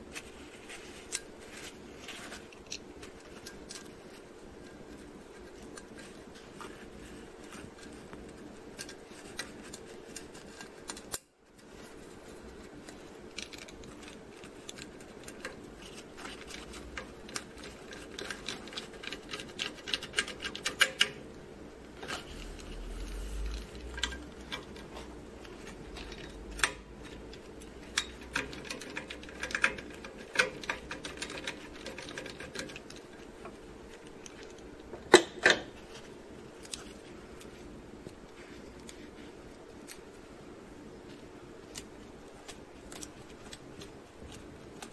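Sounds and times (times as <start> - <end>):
faint steady hum: 0.0 - 44.9.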